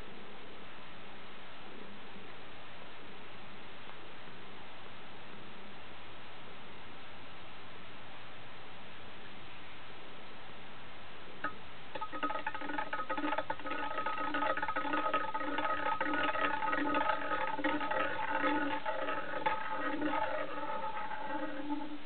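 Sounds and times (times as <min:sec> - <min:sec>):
spinning top rattling clicks: 0:11.4 - 0:22.0
spinning top ringing hum: 0:11.4 - 0:22.0.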